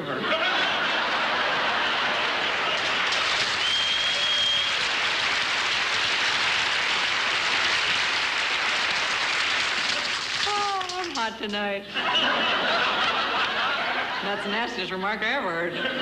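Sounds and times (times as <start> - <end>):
audience laughing: 0.0 - 3.6, 11.8 - 14.7, 15.6 - 16.0
audience applauding: 0.6 - 11.4.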